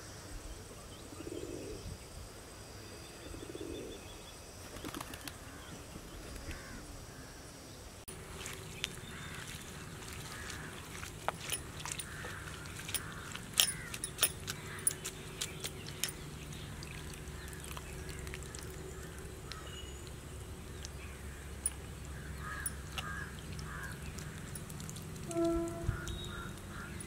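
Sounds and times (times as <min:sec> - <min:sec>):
low steady hum: 0:00.1 - 0:27.0
water splashing: 0:08.1 - 0:27.0
wet squelching and dripping: 0:08.1 - 0:27.0.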